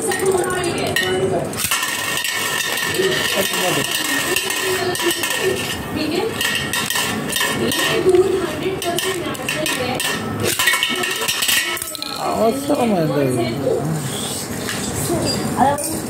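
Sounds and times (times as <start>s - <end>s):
metal plate ringing: 0.0s - 12.3s
spinning top whirring on metal plate: 0.0s - 12.8s.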